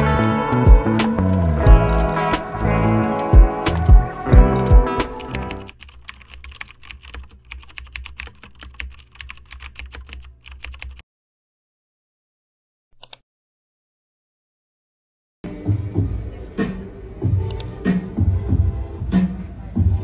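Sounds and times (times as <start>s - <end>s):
keyboard typing: 3.2s - 11.0s, 13.0s - 13.2s.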